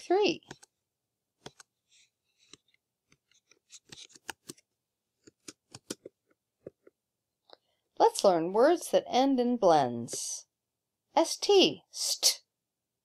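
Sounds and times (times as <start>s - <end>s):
faint clicks and taps: 0.4s - 0.8s, 1.4s - 1.7s, 2.4s - 7.6s.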